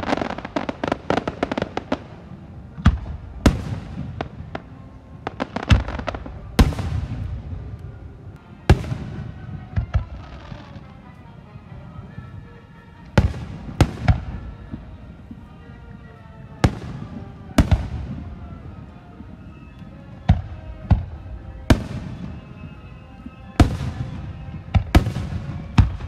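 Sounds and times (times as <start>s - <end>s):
fireworks booming: 0.0s - 7.8s, 8.6s - 10.9s, 23.6s - 26.0s.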